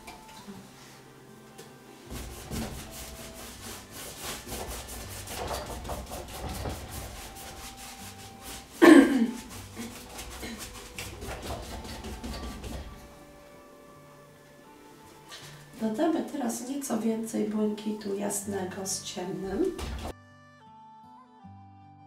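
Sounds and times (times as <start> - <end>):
paintbrush scrubbing on canvas: 2.0 - 13.0.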